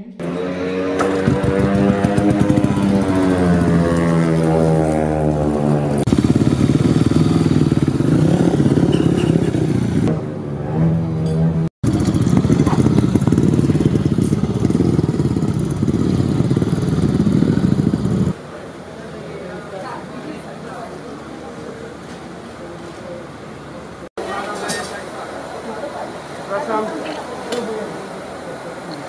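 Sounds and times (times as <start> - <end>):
motorcycle engines revving: 0.2 - 18.8.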